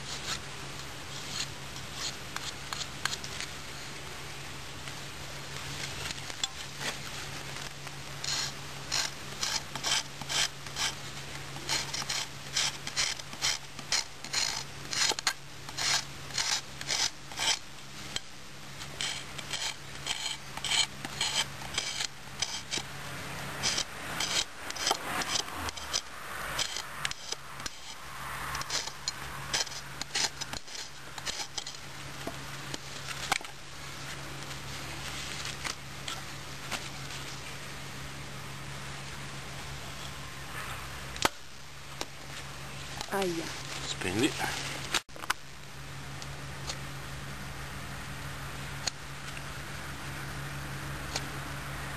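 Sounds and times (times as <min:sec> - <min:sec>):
knife scraping against wood: 0:00.0 - 0:00.4, 0:01.1 - 0:03.5, 0:05.8 - 0:37.4.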